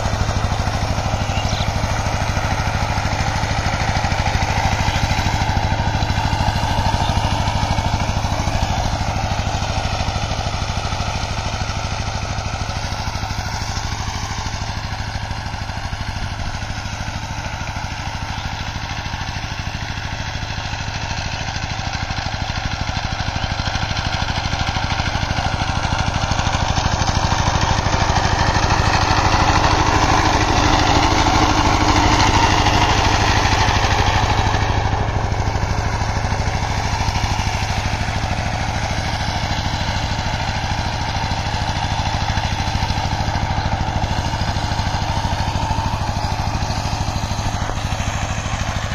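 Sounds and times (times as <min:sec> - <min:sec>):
diesel tiller engine running: 0:00.0 - 0:48.9.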